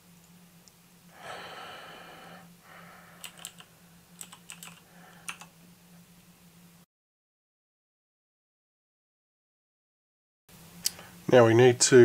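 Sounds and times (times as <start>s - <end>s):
low steady hum: 0.0s - 6.9s
computer keyboard keystrokes: 3.2s - 5.5s.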